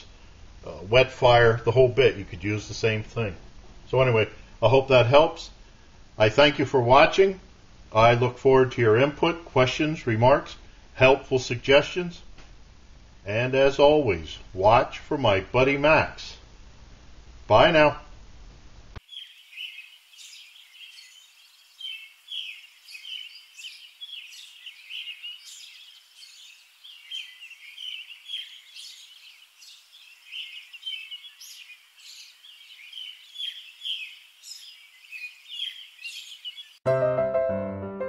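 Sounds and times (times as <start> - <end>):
birds chirping: 0.0 - 5.4, 19.0 - 36.8.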